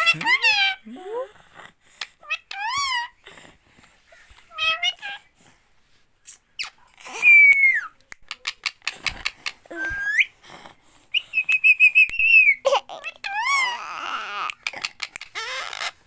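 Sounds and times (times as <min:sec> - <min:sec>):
parakeet whistling: 0:11.1 - 0:12.6
parakeet chirping: 0:11.3 - 0:16.0.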